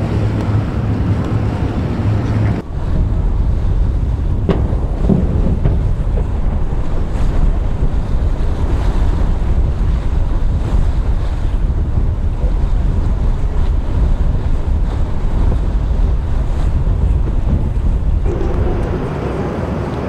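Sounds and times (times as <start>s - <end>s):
rushing water: 0.0s - 20.0s
wind buffeting microphone: 0.0s - 20.0s.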